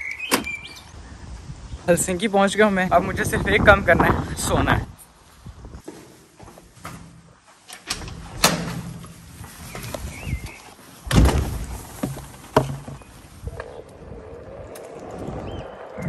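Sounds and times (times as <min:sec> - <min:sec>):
board set down thumping: 0:11.2 - 0:13.1.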